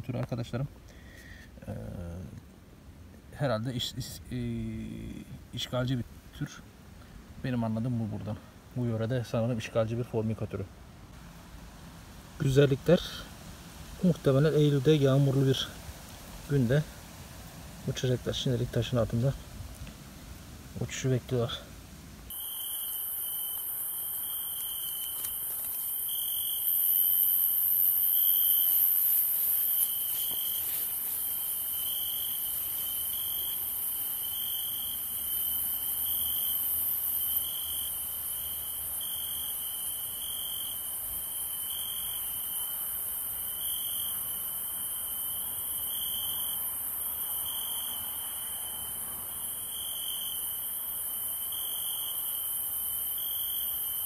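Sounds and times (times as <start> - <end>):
high insect hiss: 0.0 - 54.0
cricket chirping: 11.2 - 54.0.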